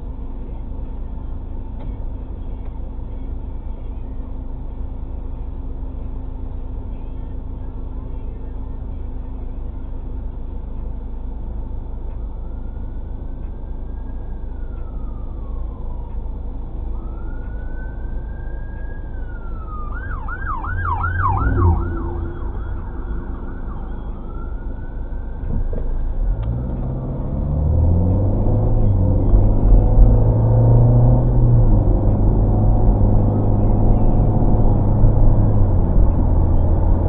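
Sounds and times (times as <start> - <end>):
car engine and road rumble: 0.0 - 37.0
emergency siren wailing and yelping: 12.3 - 16.3, 16.9 - 26.4.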